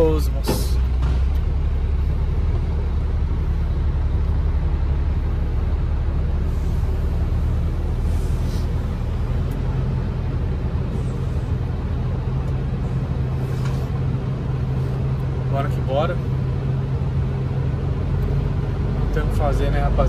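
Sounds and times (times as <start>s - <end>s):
truck diesel engine under load: 0.0s - 20.0s.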